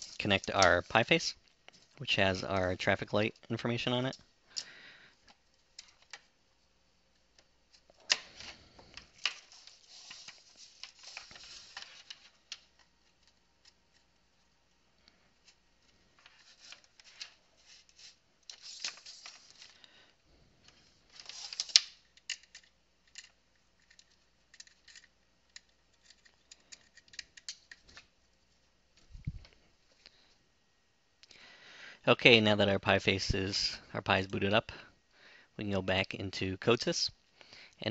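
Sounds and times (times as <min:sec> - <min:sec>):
electronics being handled: 0:00.0 - 0:06.4, 0:07.1 - 0:30.1.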